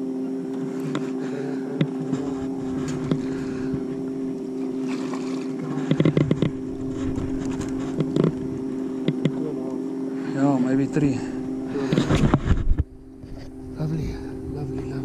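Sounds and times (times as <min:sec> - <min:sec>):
boat motor humming: 0:00.0 - 0:15.0
water splash: 0:04.5 - 0:05.7.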